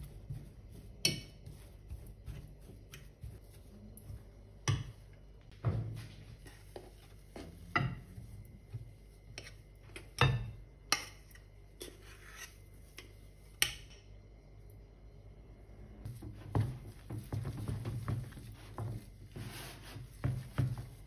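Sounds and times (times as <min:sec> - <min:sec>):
spatula stirring dough: 0:00.0 - 0:13.9, 0:16.0 - 0:21.0
spatula scraping saucepan: 0:09.2 - 0:10.2, 0:11.8 - 0:13.2, 0:16.2 - 0:21.0.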